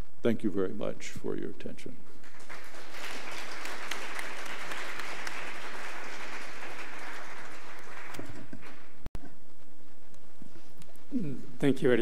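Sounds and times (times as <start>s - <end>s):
audience applauding: 2.2s - 9.0s.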